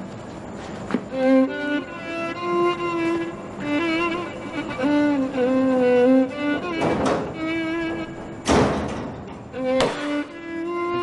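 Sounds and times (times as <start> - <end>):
sad bowed string music: 0.9 - 8.5, 9.3 - 11.0.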